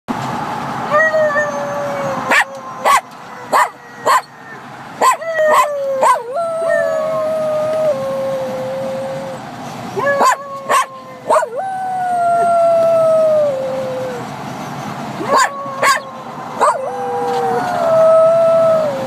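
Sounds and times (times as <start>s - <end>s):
dog howling: 0.9s - 9.4s, 10.0s - 14.3s, 15.2s - 19.0s
dog yipping: 1.9s - 6.4s, 10.0s - 11.6s, 15.2s - 17.7s.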